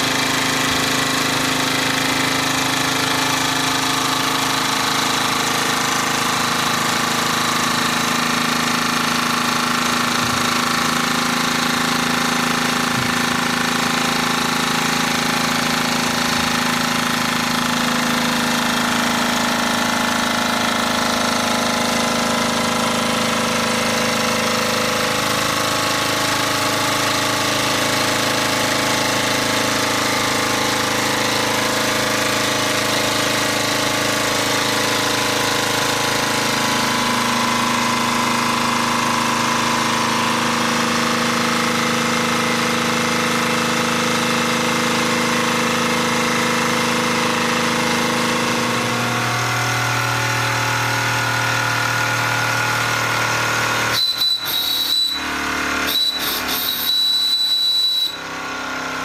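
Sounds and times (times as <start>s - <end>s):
toy steam engine running: 53.9s - 58.2s.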